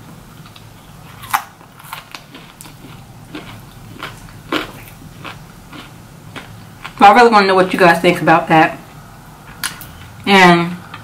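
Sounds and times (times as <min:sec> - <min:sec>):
person chewing crispy food: 0:00.4 - 0:07.0.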